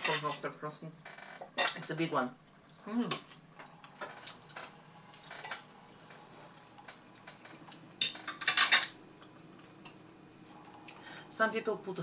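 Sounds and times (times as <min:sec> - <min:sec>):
cutlery clinking on glass plates: 0:08.0 - 0:09.0.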